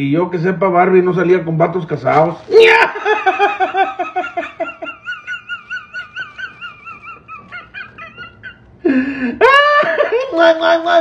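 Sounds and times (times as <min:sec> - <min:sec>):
man laughing in falsetto: 0:02.6 - 0:10.3.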